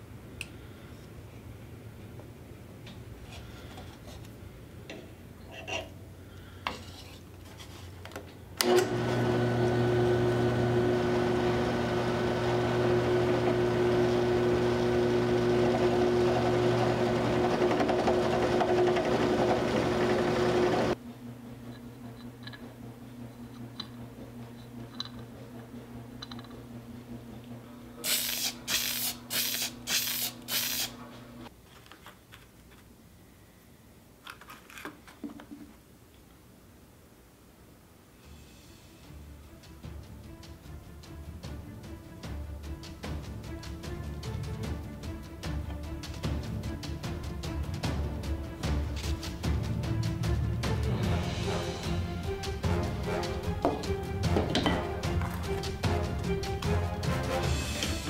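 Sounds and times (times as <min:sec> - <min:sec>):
drill press motor humming: 0:08.6 - 0:31.5
short hissing bursts: 0:28.0 - 0:31.0.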